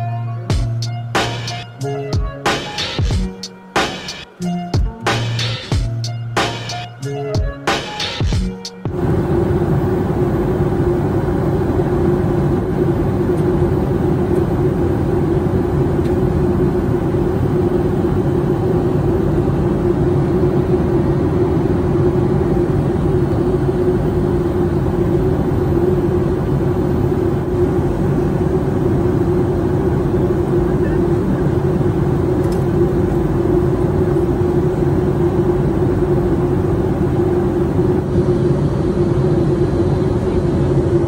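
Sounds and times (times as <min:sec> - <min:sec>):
lofi beat: 0:00.0 - 0:09.0
airplane cabin engine roar: 0:00.0 - 0:41.0.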